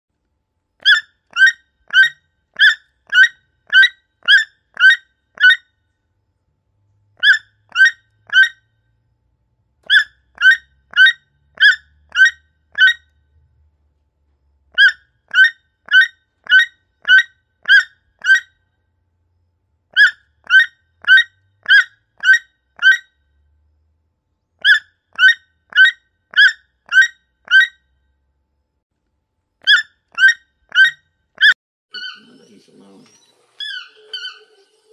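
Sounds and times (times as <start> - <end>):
toucan calling: 0.8 - 5.6, 7.2 - 8.6, 9.8 - 13.1, 14.7 - 18.6, 19.9 - 23.1, 24.6 - 27.8, 29.6 - 34.9.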